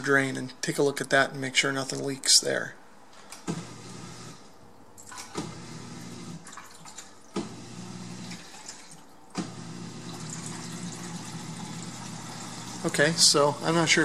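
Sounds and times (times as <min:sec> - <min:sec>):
drain pump humming: 0:05.0 - 0:14.0.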